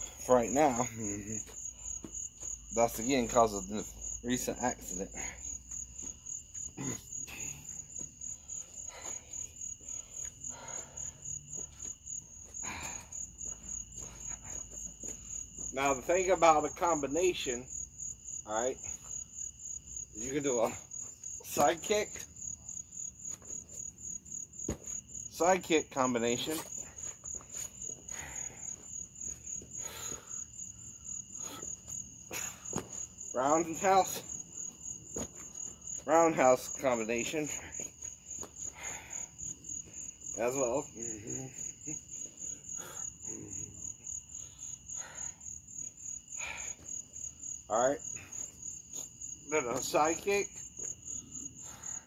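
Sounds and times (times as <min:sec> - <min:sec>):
crickets chirping: 0:00.0 - 0:52.0.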